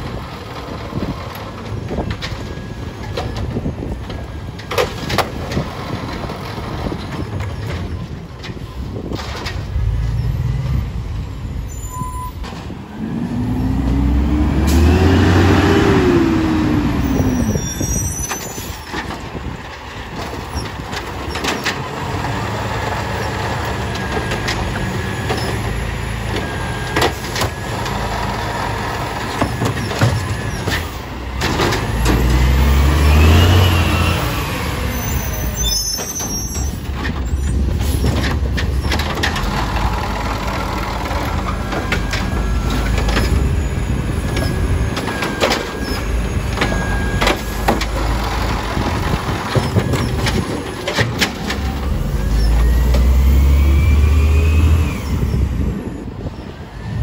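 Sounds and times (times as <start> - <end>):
diesel engine running: 36.7 - 57.0.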